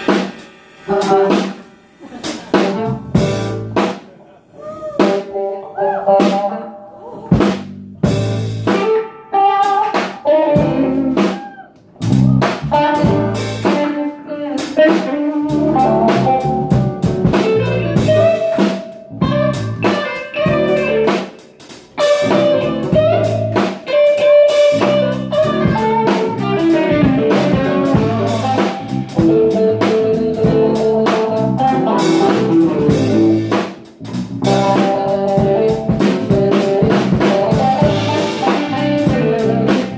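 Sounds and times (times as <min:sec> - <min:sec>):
live band playing: 0:00.0 - 0:39.9
drum hits: 0:02.3 - 0:04.1, 0:07.4 - 0:08.9, 0:16.1 - 0:39.9.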